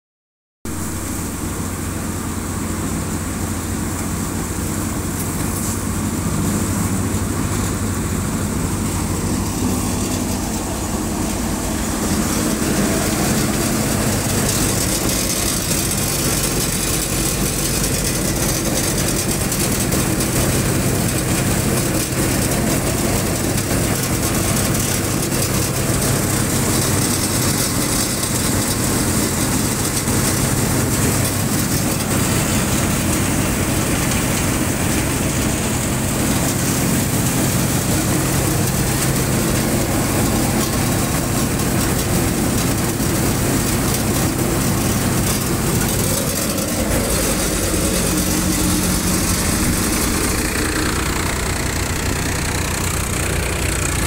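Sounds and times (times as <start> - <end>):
thresher mechanical drone: 0.7 - 54.0
low hum: 46.2 - 53.6.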